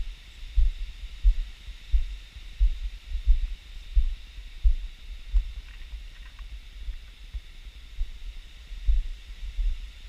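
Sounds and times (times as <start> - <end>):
faint steady hiss: 0.0 - 10.0.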